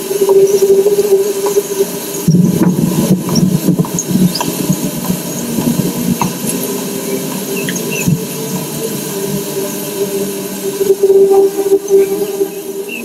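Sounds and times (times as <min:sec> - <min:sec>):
low rumbling electronic drone: 0:00.0 - 0:13.0
steady held tone: 0:00.0 - 0:13.0
faint high chirps: 0:06.5 - 0:13.0.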